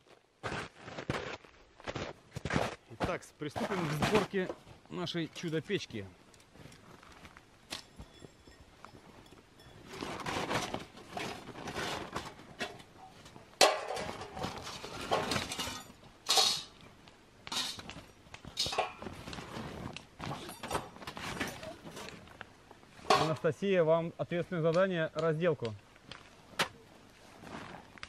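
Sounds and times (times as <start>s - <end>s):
metal plates clinking and knocking: 7.7s - 16.8s, 17.5s - 19.2s, 20.3s - 22.2s, 23.0s - 23.5s.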